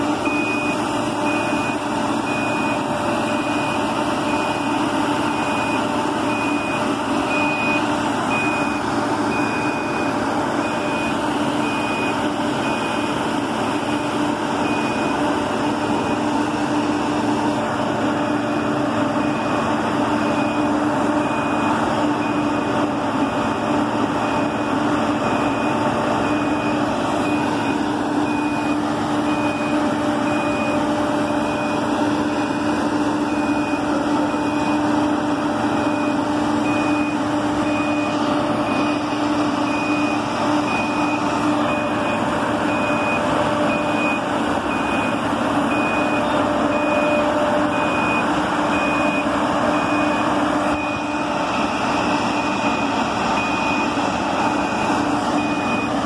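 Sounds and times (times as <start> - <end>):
drill rig mechanical hum: 0.0 - 56.0
warning alarm beeping: 0.2 - 56.0.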